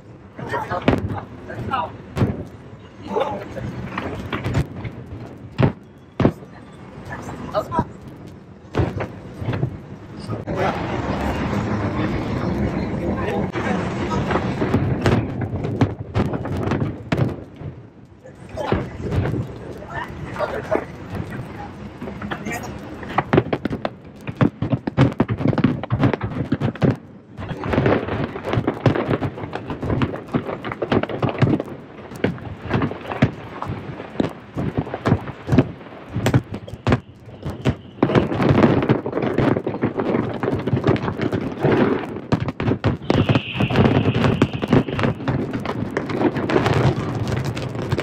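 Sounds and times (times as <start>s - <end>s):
fireworks bangs and crackles: 0.0s - 48.0s
high firework whistle: 36.5s - 38.5s, 43.0s - 45.3s.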